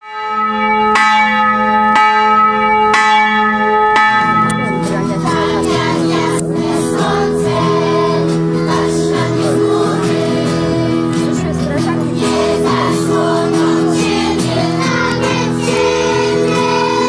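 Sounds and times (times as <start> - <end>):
bell tolling: 0.0 - 17.0
choir singing: 4.2 - 17.0.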